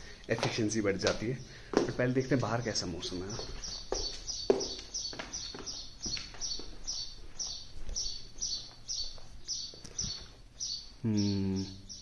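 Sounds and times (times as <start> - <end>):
bird chirping: 0.5 - 12.0.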